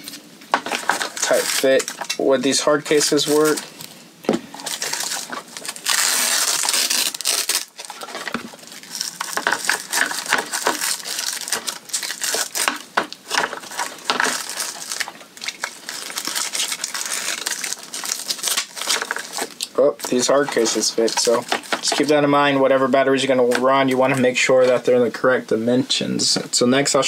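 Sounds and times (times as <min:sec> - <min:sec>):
strap rustling: 0:00.0 - 0:22.8.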